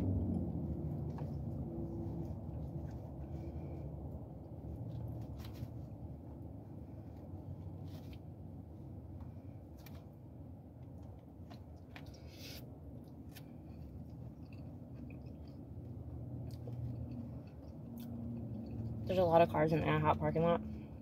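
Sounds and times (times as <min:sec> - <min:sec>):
steady low rumble: 0:00.0 - 0:21.0
chewing smacks: 0:13.0 - 0:19.0.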